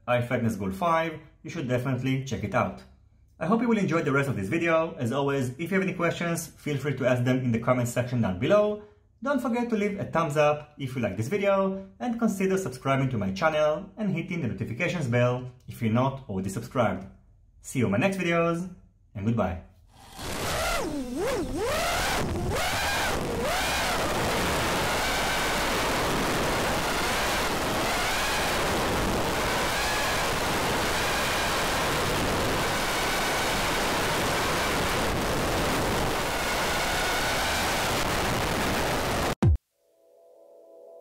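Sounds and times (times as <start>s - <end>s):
quadcopter motors whining: 19.9s - 38.0s.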